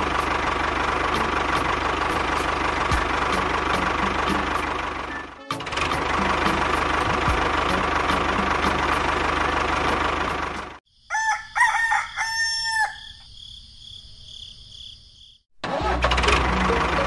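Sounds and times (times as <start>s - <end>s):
rooster crowing: 11.0s - 13.3s.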